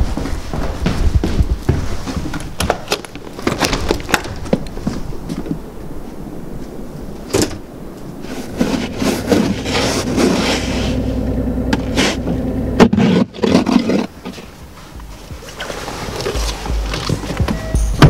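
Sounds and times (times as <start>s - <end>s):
steady low hum: 0.0s - 3.4s, 4.1s - 18.0s
brush scraping snow off windshield: 8.2s - 11.2s, 11.8s - 17.3s.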